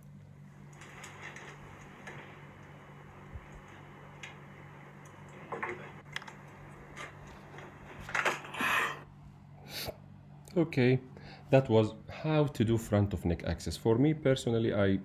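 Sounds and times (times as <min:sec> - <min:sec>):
low steady hum: 0:00.0 - 0:15.0
clicks and handling noises: 0:00.7 - 0:02.8, 0:03.4 - 0:08.6.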